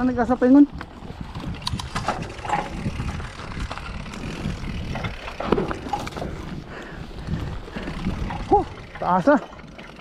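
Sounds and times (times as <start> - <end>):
bike clicks and rattles: 0.0 - 10.0
wind rumble on microphone: 0.0 - 10.0.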